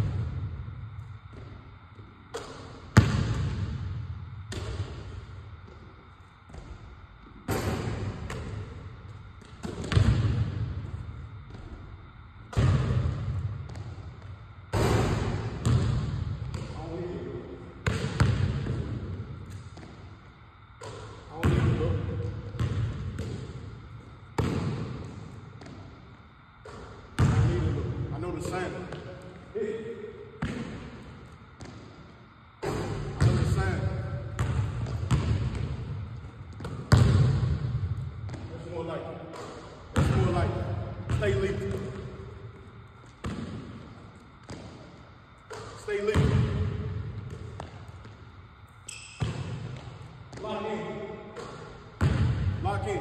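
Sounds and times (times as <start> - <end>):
basketball bouncing on wooden floor: 1.3 - 5.9, 6.5 - 11.9, 12.5 - 16.8, 17.8 - 20.1, 20.8 - 23.7, 24.4 - 26.0, 26.6 - 27.8, 30.4 - 38.6, 39.3 - 40.4, 41.0 - 48.2, 49.0 - 50.6, 51.4 - 53.0.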